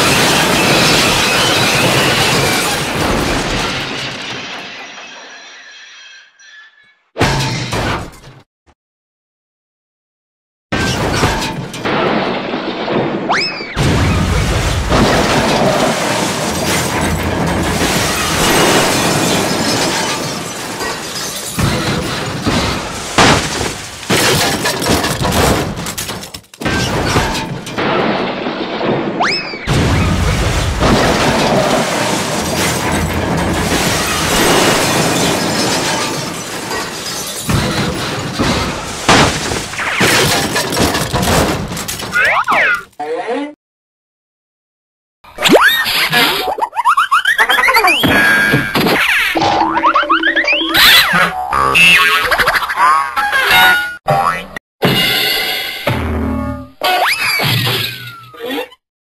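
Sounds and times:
glass smashing and breaking: 0:00.0 - 0:06.2, 0:10.8 - 0:42.9
heavy impacts: 0:11.4 - 0:42.1.

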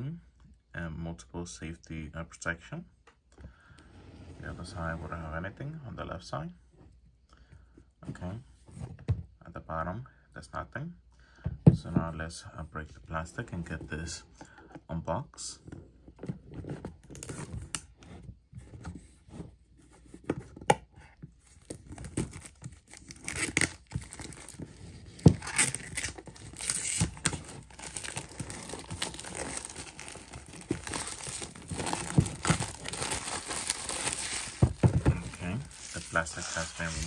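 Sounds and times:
plastic shrink wrap tearing: 0:25.4 - 0:34.6.

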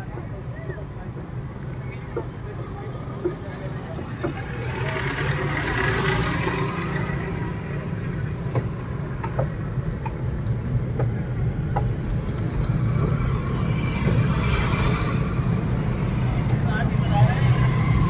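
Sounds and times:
vehicle rumble on paved road: 0:00.0 - 0:18.0.

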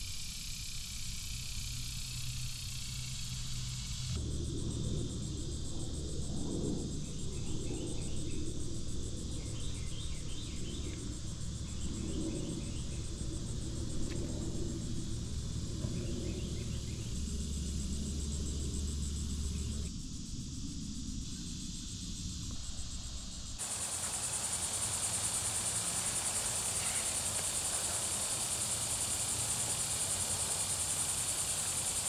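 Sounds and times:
high insect buzz: 0:00.0 - 0:32.0
low rumble on microphone: 0:00.6 - 0:23.6.

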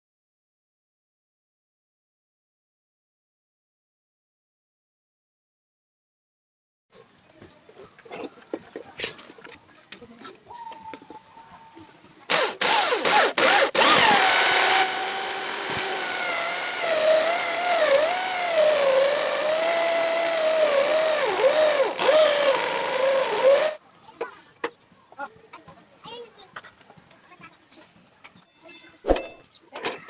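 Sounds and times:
electric drill hole saw cutting wood: 0:12.3 - 0:23.8.

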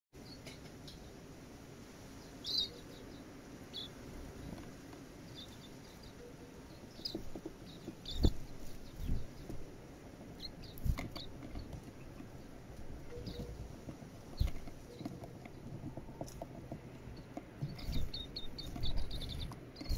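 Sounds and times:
birds chirping: 0:00.2 - 0:01.3, 0:02.0 - 0:19.9
birds knocking on wooden feeder: 0:07.0 - 0:19.9.

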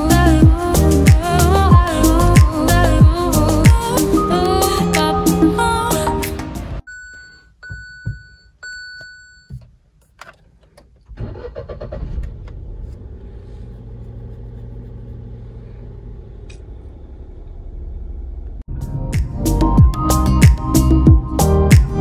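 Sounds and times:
electronic car beeps: 0:06.9 - 0:09.6
car clunks: 0:07.6 - 0:08.4, 0:09.0 - 0:13.1
car engine starting and idling: 0:10.0 - 0:20.2.

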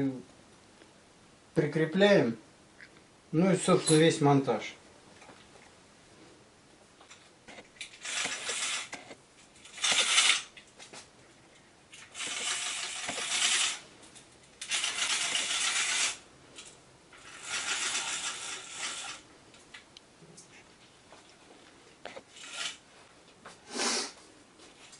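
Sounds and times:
blind being handled scratchily: 0:07.2 - 0:11.1, 0:11.9 - 0:19.3, 0:22.1 - 0:23.0.

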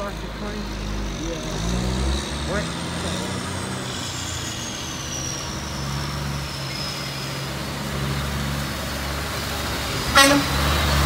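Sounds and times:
truck diesel engine running: 0:00.0 - 0:11.0
tyres hissing on wet road: 0:00.0 - 0:11.0.

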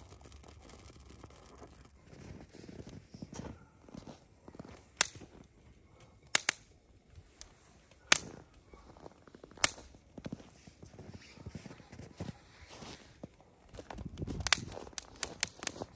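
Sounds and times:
dry wood cracking: 0:00.0 - 0:03.0, 0:04.5 - 0:06.8, 0:07.4 - 0:10.3, 0:13.2 - 0:15.9.

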